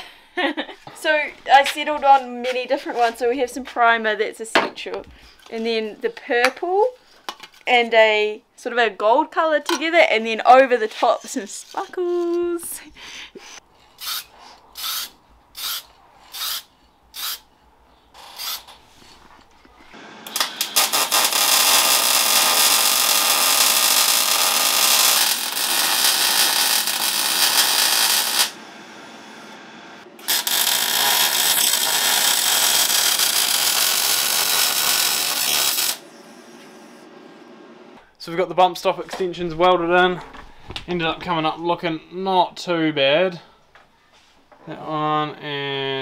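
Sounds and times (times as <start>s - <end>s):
arc welding crackling hiss: 20.2s - 28.6s, 30.2s - 36.0s.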